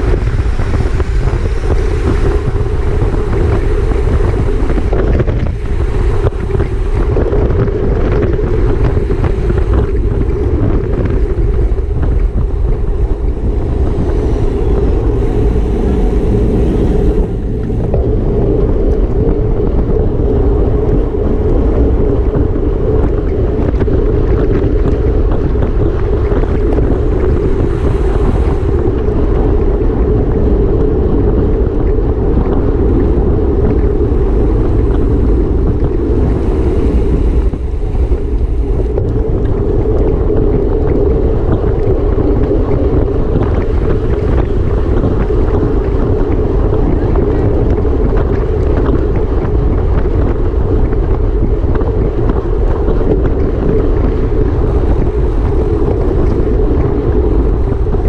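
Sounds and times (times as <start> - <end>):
wind rushing over microphone: 0.0 - 58.0.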